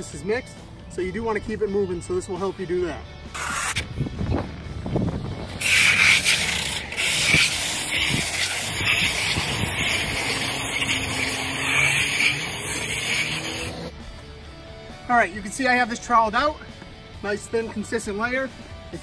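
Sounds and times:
trowel scraping on concrete: 3.3 - 3.9, 5.6 - 14.0.

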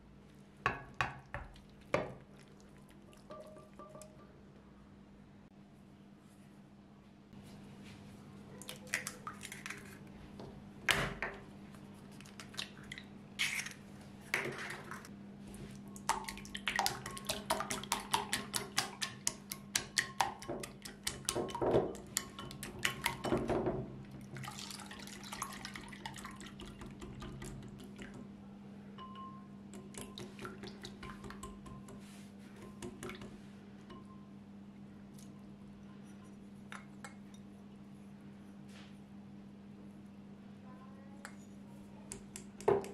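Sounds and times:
soft liquid whisking: 14.3 - 28.3, 35.0 - 38.7.

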